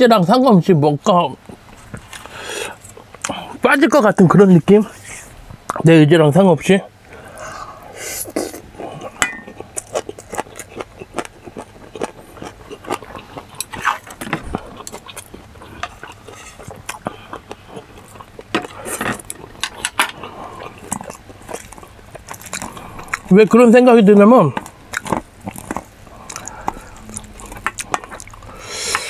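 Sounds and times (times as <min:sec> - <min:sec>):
chewing and lip smacking: 0:08.2 - 0:23.6, 0:24.5 - 0:29.0
utensils clinking on metal bowl: 0:09.2 - 0:09.6.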